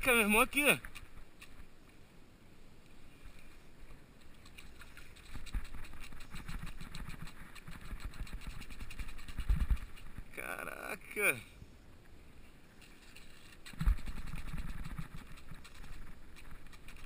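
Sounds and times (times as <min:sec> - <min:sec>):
wind rumbling on microphone: 0:03.2 - 0:10.4, 0:12.8 - 0:17.0.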